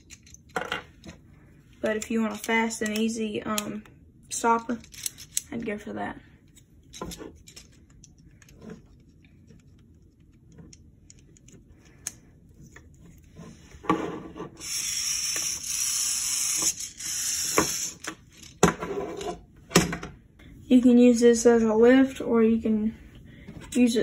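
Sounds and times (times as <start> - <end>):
plastic parts clicking: 0.0 - 0.6, 4.7 - 5.6, 6.8 - 12.2
motor whirring: 14.6 - 18.1.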